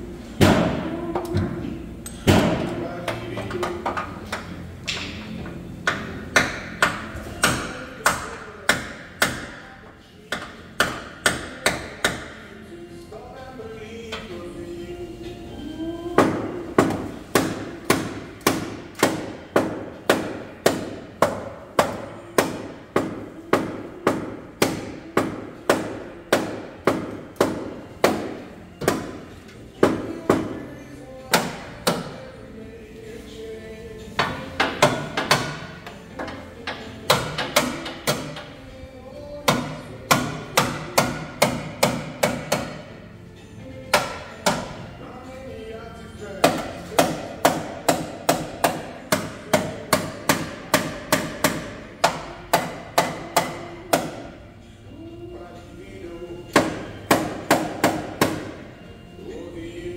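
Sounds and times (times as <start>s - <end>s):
hammer blows on car metal: 5.8s - 9.6s, 10.3s - 12.4s, 16.2s - 30.6s, 31.3s - 32.2s, 34.2s - 38.6s, 39.4s - 43.0s, 43.9s - 44.9s, 46.4s - 54.3s, 56.5s - 58.7s.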